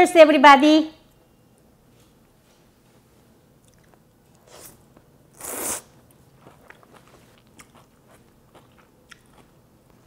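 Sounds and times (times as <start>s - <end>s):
slurping noodles: 4.4s - 6.0s.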